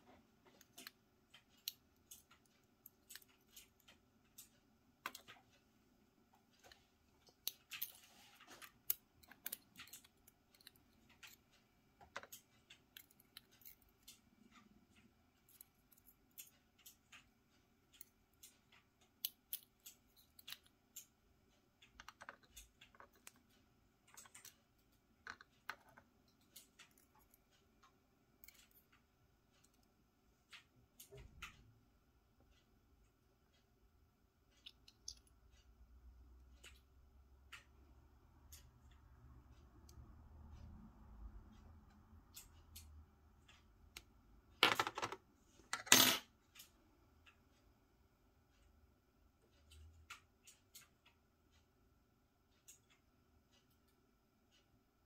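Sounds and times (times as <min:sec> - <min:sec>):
small metal parts clicking: 0:00.5 - 0:05.5, 0:06.6 - 0:17.3, 0:17.9 - 0:21.1, 0:21.8 - 0:27.5, 0:34.5 - 0:35.4.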